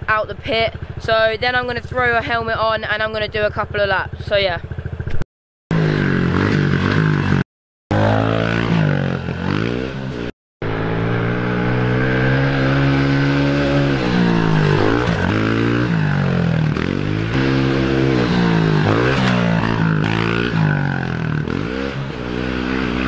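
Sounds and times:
motorbike engine revving: 4.6 - 23.0.

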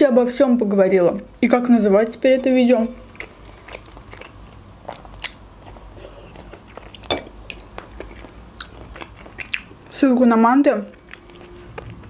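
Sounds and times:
person chewing food: 2.0 - 10.0, 10.9 - 12.0.

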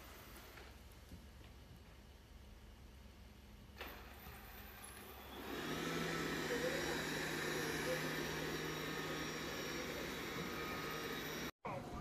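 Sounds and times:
robot vacuum suction fan: 4.1 - 11.5.

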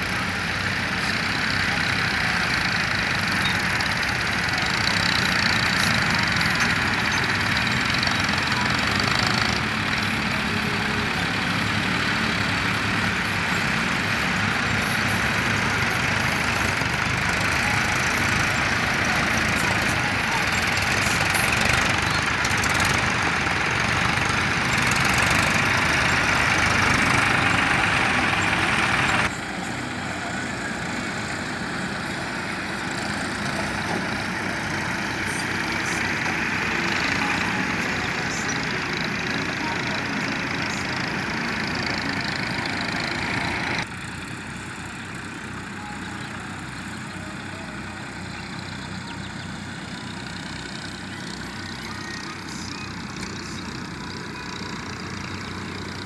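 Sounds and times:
tractor diesel engines running: 0.0 - 56.0.

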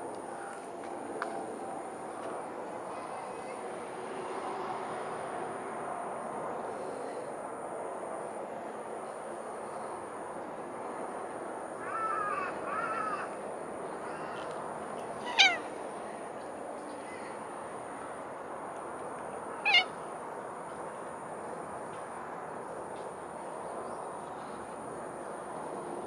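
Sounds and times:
cat meowing: 15.2 - 15.7, 19.6 - 19.9.

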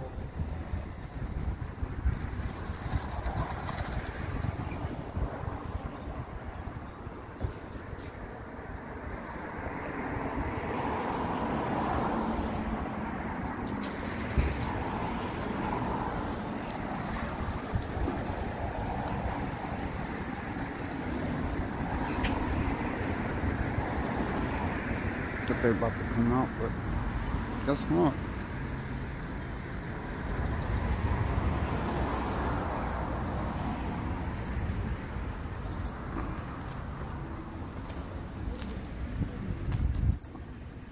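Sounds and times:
street traffic: 0.0 - 40.9
vehicle passing: 9.5 - 38.8.

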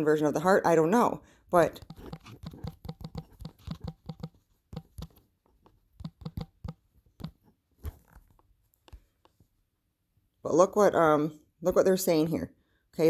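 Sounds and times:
fingertips tapping on touchscreen: 1.6 - 9.4.

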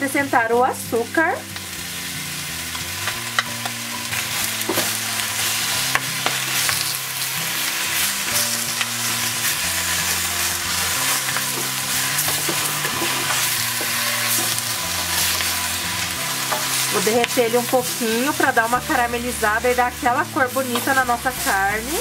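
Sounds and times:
food sizzling in hot oil: 0.0 - 22.0
wooden spatula scraping pot: 9.8 - 18.1.

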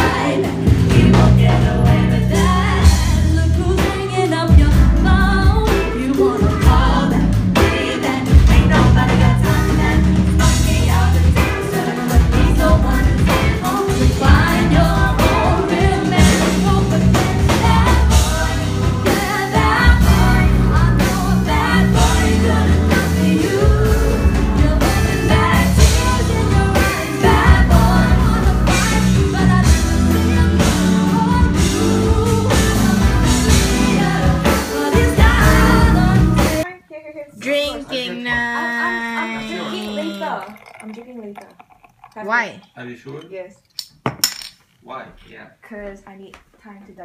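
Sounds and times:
electric guitar: 0.0 - 36.6
keyboard: 0.0 - 36.7
steady drum beat: 0.0 - 36.7
women singing together: 0.0 - 36.7, 37.3 - 41.0.

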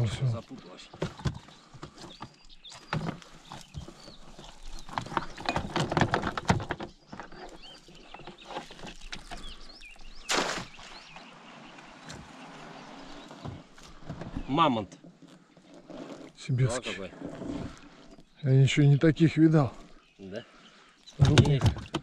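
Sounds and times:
knocks and clatter: 4.9 - 7.3
water splash: 10.2 - 12.9.

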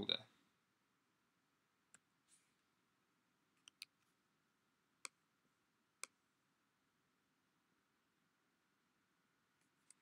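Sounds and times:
computer mouse clicks: 3.6 - 4.1.

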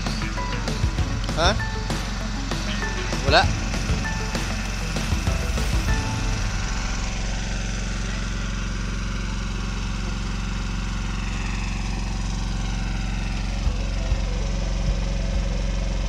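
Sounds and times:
boat engine droning: 0.0 - 16.0.

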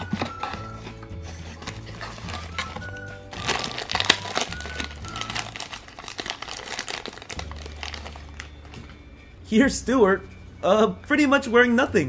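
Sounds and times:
background music: 0.0 - 12.0
foil bag tearing and crinkling: 1.6 - 8.8.

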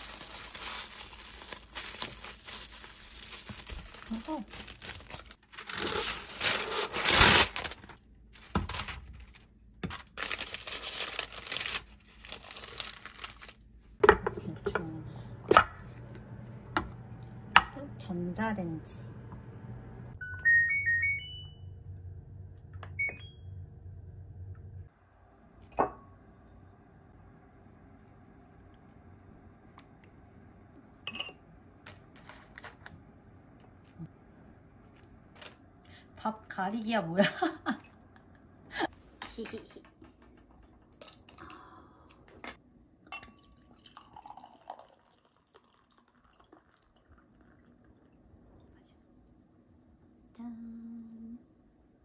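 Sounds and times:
low steady hum: 0.0 - 52.0
beer pouring into glass: 43.0 - 48.1.

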